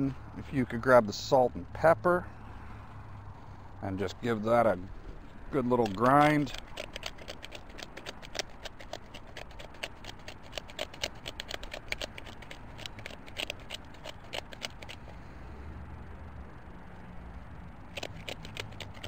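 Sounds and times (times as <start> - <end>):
pepper mill grinding clicks: 5.6 - 15.0, 18.0 - 19.0.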